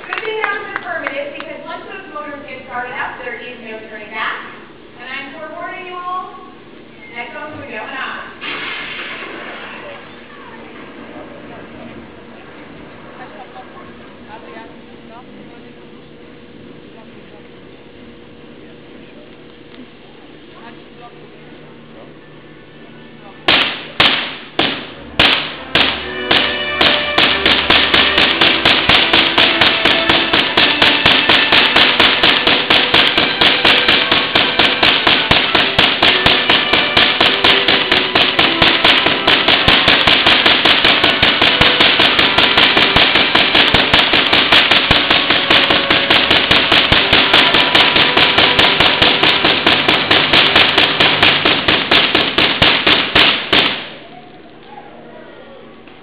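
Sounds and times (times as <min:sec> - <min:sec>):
loud sharp spark cracks: 0:08.4 - 0:10.0, 0:23.5 - 0:54.0.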